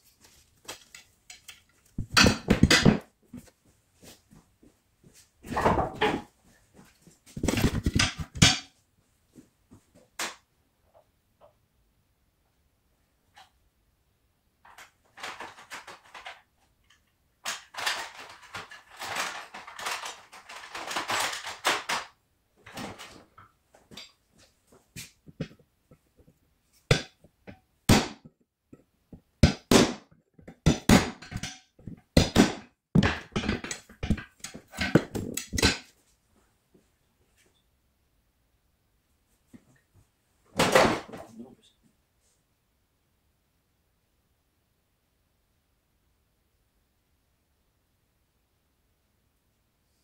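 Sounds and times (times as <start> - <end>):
rustling and scraping: 0.0 - 10.2, 14.6 - 27.6
sharp metal clicks and knocks: 30.5 - 35.9.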